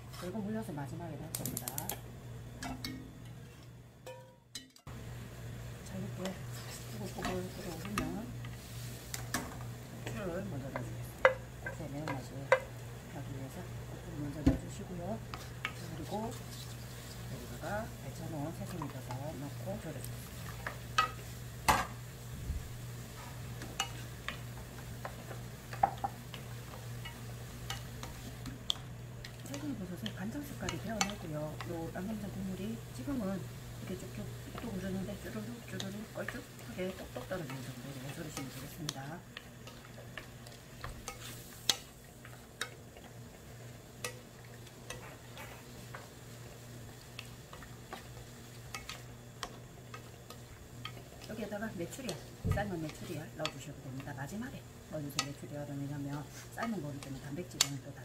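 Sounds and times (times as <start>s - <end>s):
wooden spatula scraping and stirring: 0.0s - 0.5s, 6.1s - 9.4s, 14.3s - 21.4s, 23.1s - 58.0s
steady low hum: 0.0s - 58.0s.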